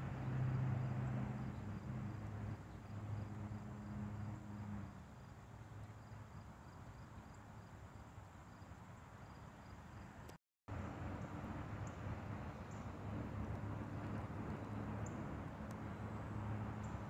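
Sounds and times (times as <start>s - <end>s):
distant engine hum: 0.0s - 8.3s, 10.0s - 17.0s
crickets chirping: 0.3s - 10.2s.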